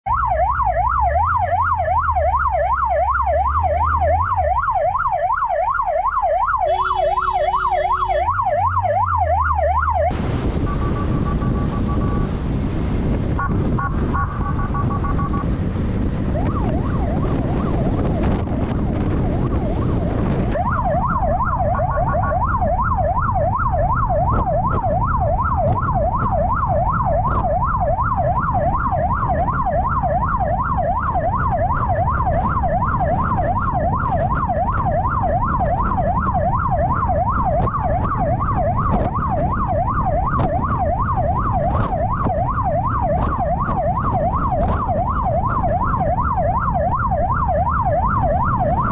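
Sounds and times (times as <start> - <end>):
siren yelping: 0.1 - 12.3, 13.4 - 48.9
wind rush: 9.8 - 48.9.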